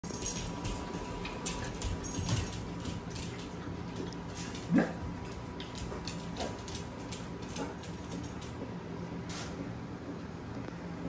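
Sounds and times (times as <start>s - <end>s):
dog claws clicking on wood floor: 0.0s - 8.6s.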